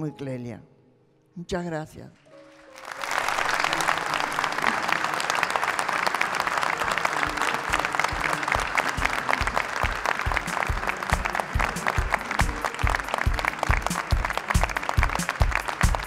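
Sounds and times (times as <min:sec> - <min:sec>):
audience applauding: 0:02.2 - 0:16.0
music with low beat: 0:07.2 - 0:16.0.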